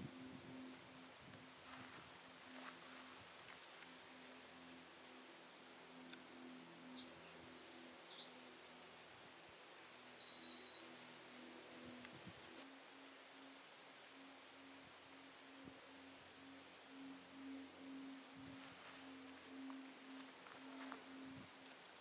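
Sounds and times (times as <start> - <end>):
faint pulsing low hum: 0.0 - 22.0
songbird trilling: 5.0 - 11.2.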